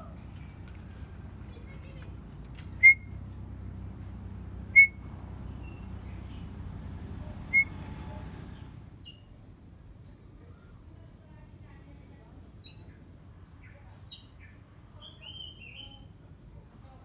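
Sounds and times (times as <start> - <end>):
bird whistled chirps: 2.8 - 3.2, 4.7 - 5.0, 7.5 - 7.8.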